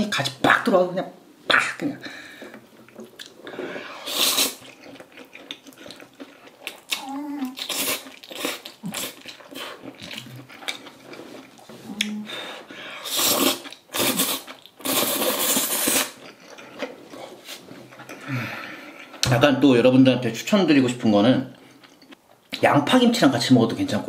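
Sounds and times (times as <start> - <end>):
noodle slurping: 3.5 - 4.8, 13.0 - 16.2
wet chewing: 4.1 - 12.2.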